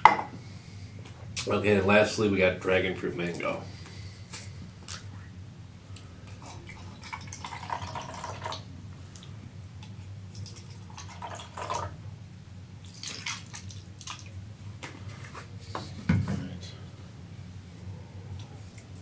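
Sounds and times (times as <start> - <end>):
water pouring into plastic cup: 6.7 - 8.7, 10.4 - 12.0.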